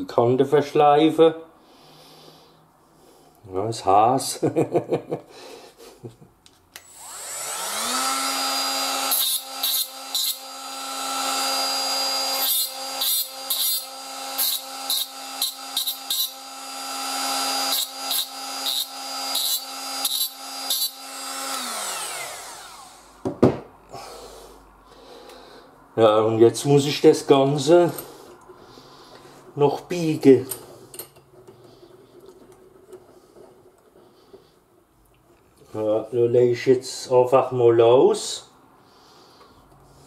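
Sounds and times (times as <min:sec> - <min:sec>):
rotary grinder whining: 0:06.8 - 0:23.2
knock: 0:23.2 - 0:23.7.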